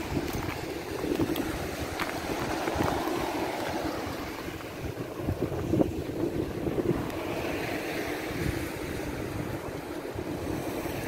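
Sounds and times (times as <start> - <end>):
footsteps crunching on seashells: 0.0 - 4.8
surf washing on shore: 0.0 - 11.0
wind buffeting the microphone: 0.0 - 11.0.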